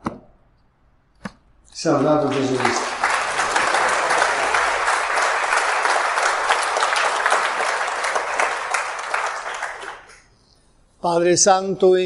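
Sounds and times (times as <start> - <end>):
crowd applauding: 1.8 - 10.3.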